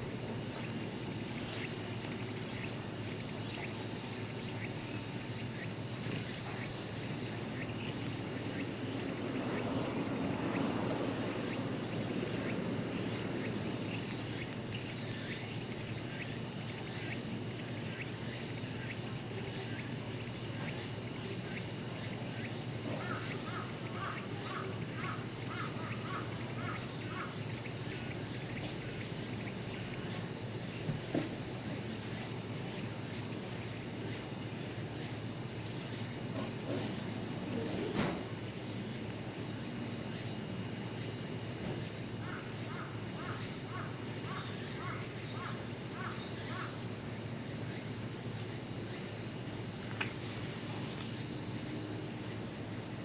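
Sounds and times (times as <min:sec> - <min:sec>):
low outdoor hum: 0:00.0 - 0:53.0
steady background noise: 0:00.0 - 0:53.0
crow cawing: 0:42.2 - 0:46.8.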